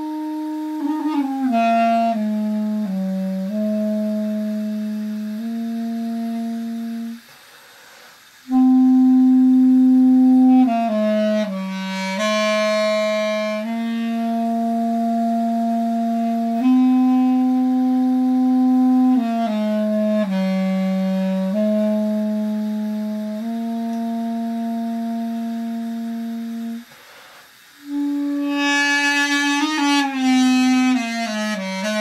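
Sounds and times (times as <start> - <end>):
duduk playing slow melody: 27.8 - 32.0.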